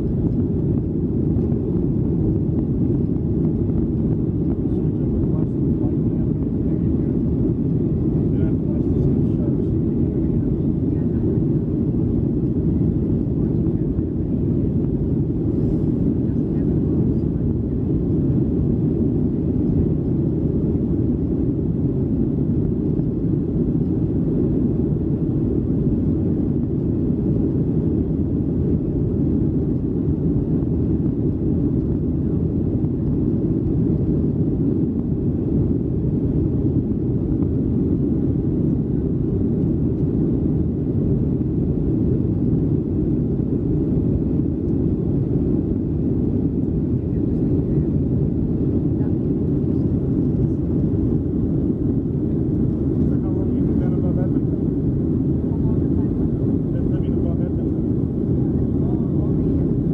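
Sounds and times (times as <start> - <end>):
airplane cabin rumble: 0.0 - 59.9.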